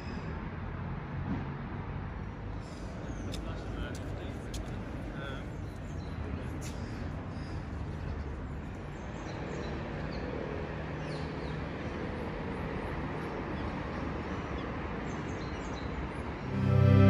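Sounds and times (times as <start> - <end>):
traffic hum: 0.0 - 17.0
small birds chirping: 2.5 - 12.2.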